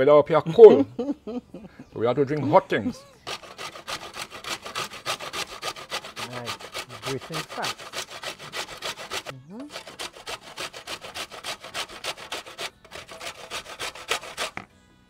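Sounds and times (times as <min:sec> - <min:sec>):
grating on a metal grater: 0:03.2 - 0:14.6.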